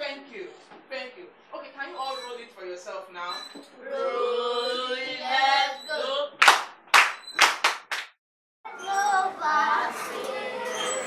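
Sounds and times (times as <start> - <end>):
children singing: 3.8 - 6.4, 8.7 - 11.0
hand claps: 6.4 - 8.2.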